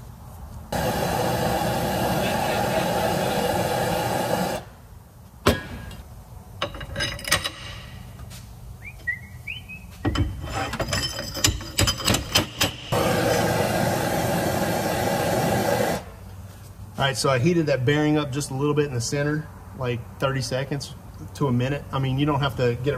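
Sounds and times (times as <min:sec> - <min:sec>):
steady hiss: 0:00.7 - 0:04.9, 0:12.9 - 0:16.8
pipe hammering metal bearing: 0:05.4 - 0:06.0.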